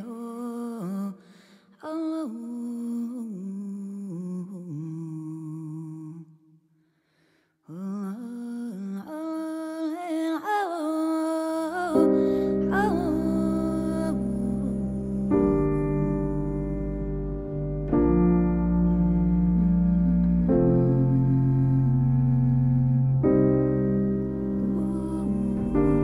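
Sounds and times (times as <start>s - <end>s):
person humming a melody: 7.7s - 26.0s.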